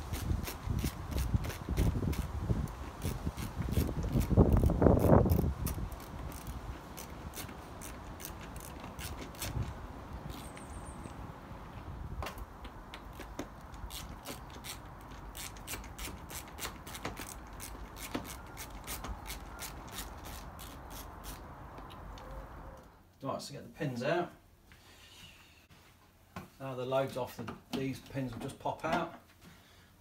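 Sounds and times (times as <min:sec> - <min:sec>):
ratchet screwdriver clicking: 0:03.0 - 0:09.7, 0:13.9 - 0:21.4.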